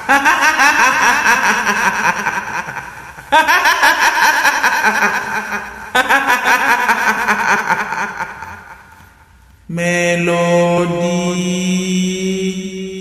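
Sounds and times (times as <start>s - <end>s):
woman cackling laughter: 0.0s - 9.0s.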